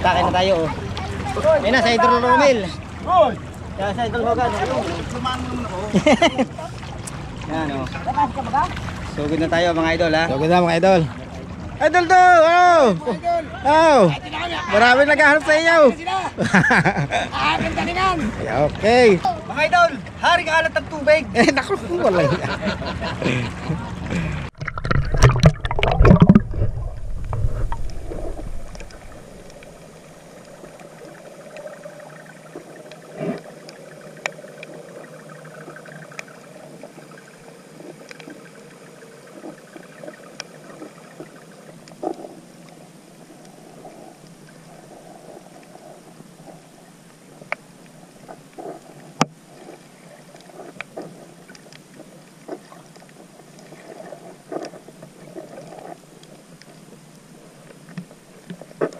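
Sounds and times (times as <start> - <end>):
water splashing and churning: 0.0 - 16.3, 21.5 - 58.9
muffled underwater hiss: 22.9 - 58.9
underwater clicks and crackles: 24.5 - 58.9.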